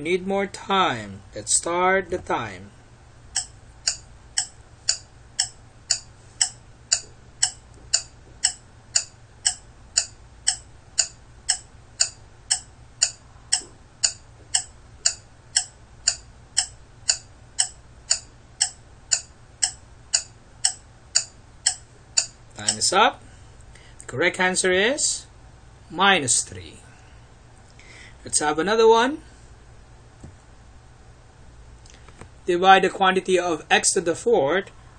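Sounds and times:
clock ticking: 3.3 - 23.0.

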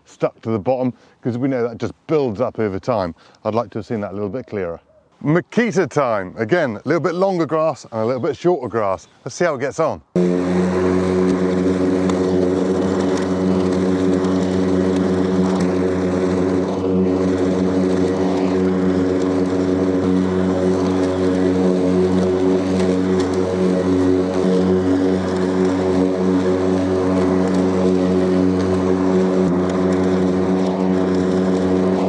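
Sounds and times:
lawnmower motor humming: 10.2 - 32.0.

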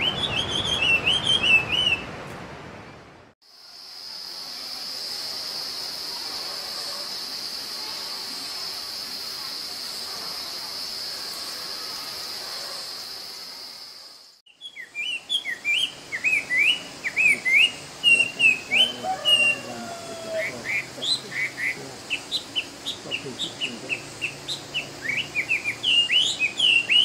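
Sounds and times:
bird singing whistled notes: 0.0 - 2.1, 14.5 - 27.0.

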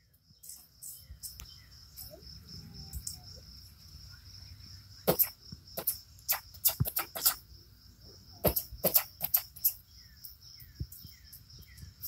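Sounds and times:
insects trilling: 0.0 - 12.0
sharp clicks: 5.1 - 7.4, 8.4 - 9.8.

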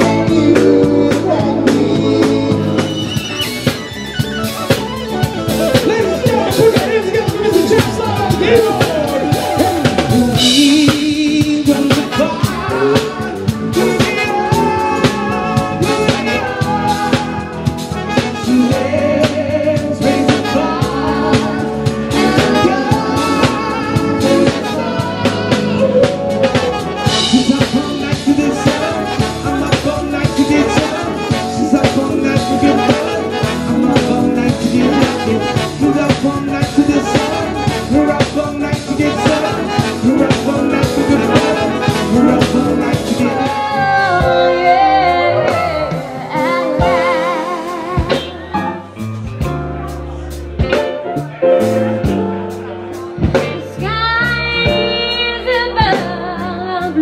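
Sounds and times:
trumpet and trombone: 0.0 - 48.5
bass and guitar: 0.0 - 57.0
drums: 0.0 - 57.0
keyboards: 0.0 - 57.0
woman singing: 38.0 - 48.7, 53.4 - 57.0.

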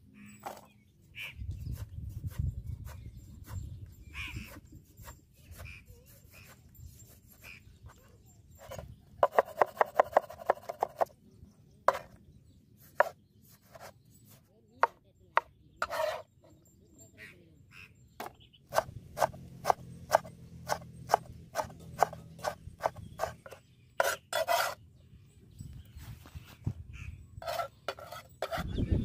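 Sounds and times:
cleaver chopping on wooden board: 8.7 - 11.1, 11.9 - 12.1, 18.2 - 24.8.

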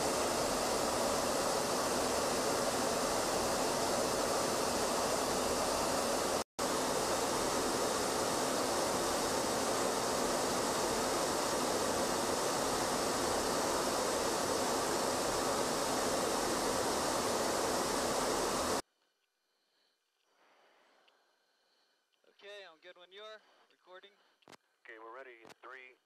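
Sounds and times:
loud steady rushing noise: 0.0 - 18.8.

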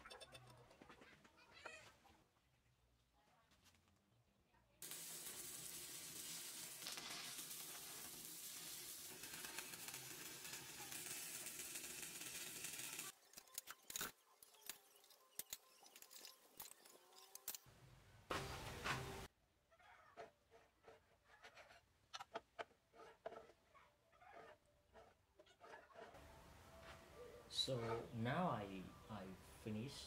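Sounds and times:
arc welding crackling sizzle: 4.8 - 17.6.

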